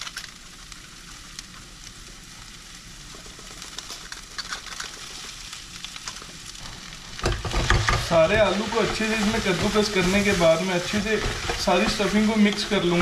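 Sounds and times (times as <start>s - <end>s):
vegetables sizzling in oil: 0.0s - 13.0s
potato being grated: 7.5s - 13.0s.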